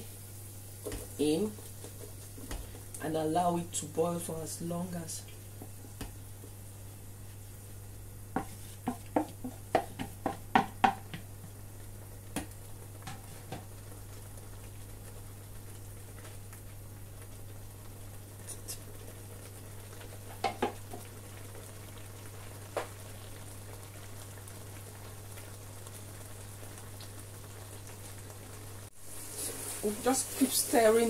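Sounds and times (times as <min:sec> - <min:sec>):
wooden spoon knocking pot: 0:08.3 - 0:11.3, 0:20.4 - 0:21.0.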